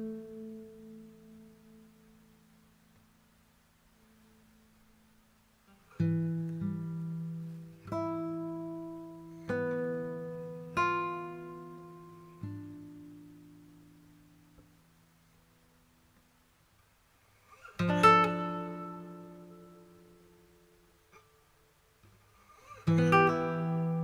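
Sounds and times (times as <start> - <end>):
guitar strummed slowly: 0.0 - 2.5, 5.7 - 15.8, 17.4 - 21.4, 22.0 - 24.0.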